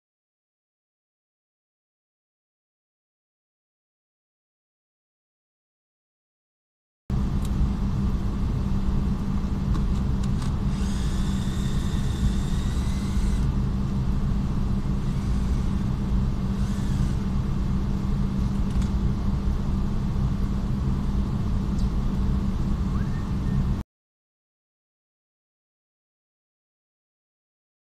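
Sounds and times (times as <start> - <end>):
high whine: 7.1 - 23.8
low workshop rumble: 7.1 - 23.8.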